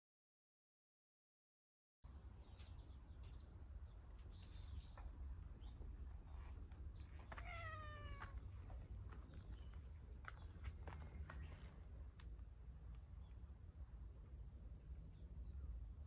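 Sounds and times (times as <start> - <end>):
cat meowing: 7.2 - 8.4.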